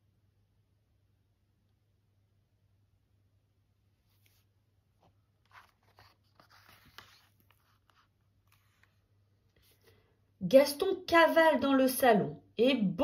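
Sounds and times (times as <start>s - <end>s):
paper pages rustling: 4.0s - 9.9s.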